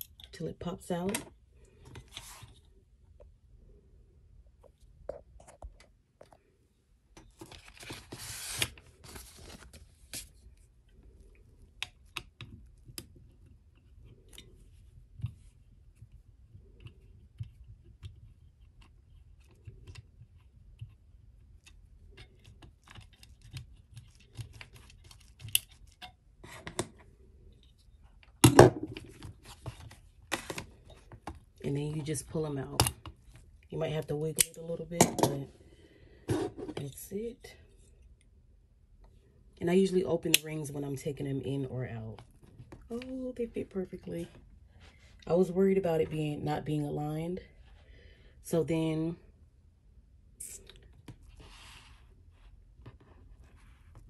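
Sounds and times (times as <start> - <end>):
pages and cover rustling: 7.3 - 10.5.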